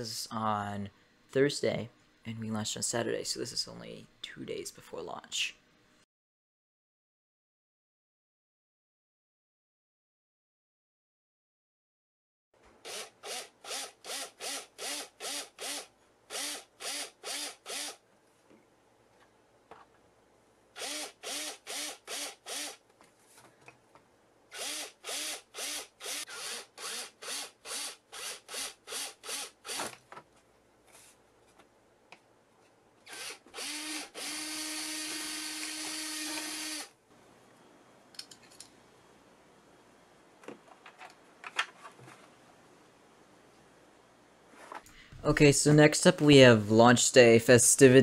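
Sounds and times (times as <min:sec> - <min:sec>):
cordless drill: 0:12.8 - 0:18.0, 0:20.8 - 0:22.8, 0:24.5 - 0:29.9, 0:33.0 - 0:36.9.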